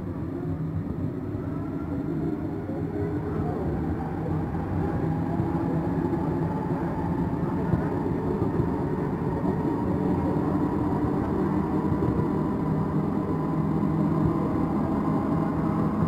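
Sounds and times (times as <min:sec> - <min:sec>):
faint steady whine: 0:00.0 - 0:16.0
metro train rumble: 0:00.0 - 0:16.0.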